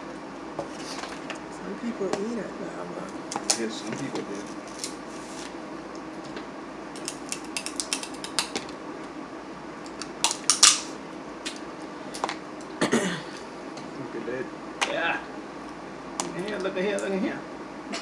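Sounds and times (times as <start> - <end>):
shells cracking and snapping: 3.3 - 3.6, 6.9 - 8.8, 9.8 - 12.7.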